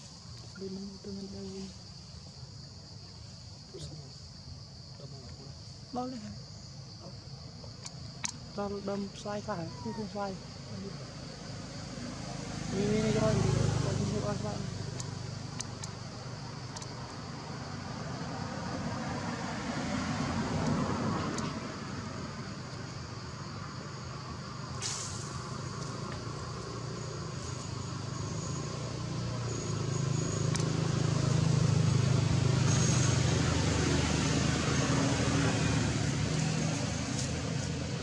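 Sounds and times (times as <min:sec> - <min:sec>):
sharp click: 0:15.0 - 0:16.0, 0:16.7 - 0:17.0.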